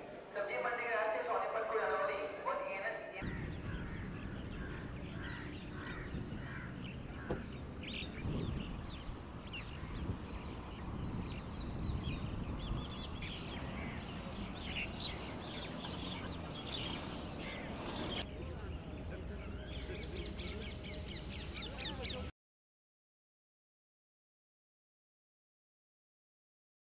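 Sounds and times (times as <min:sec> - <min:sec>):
birds chirping: 0:02.5 - 0:22.3
low background rumble: 0:03.2 - 0:14.6.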